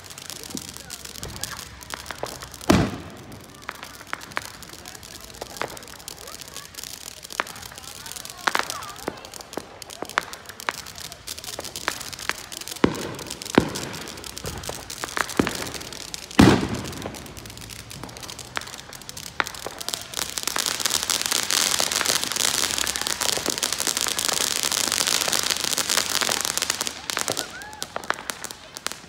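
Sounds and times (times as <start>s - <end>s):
firework fountain crackling hiss: 0.0s - 29.0s
firework pops: 0.0s - 29.0s
firework bang: 0.4s - 4.6s, 11.6s - 24.4s.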